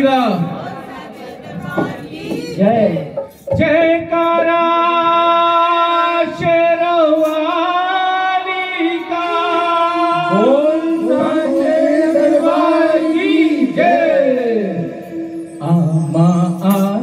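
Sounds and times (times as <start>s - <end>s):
man singing into a microphone: 2.4s - 17.0s
steady drone: 9.4s - 17.0s.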